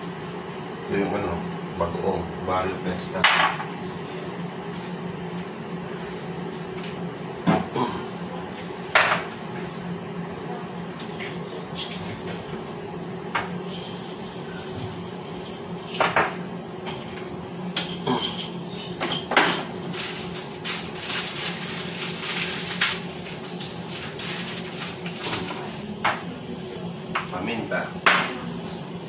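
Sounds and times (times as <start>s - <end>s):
steady low hum: 0.0s - 29.0s
dishes and utensils clinking: 17.8s - 20.4s.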